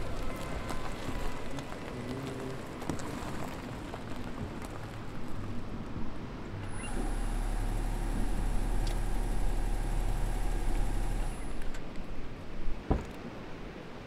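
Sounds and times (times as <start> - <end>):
faint outdoor background noise: 0.0 - 14.0
car engine running: 6.6 - 11.9.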